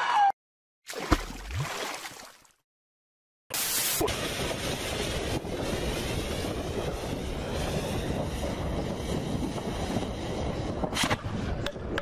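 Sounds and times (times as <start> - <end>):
steady rushing noise: 3.6 - 11.8.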